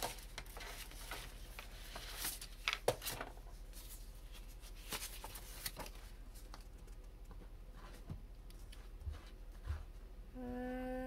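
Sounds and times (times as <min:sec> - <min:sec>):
paper rustling and crackling: 0:00.0 - 0:08.0.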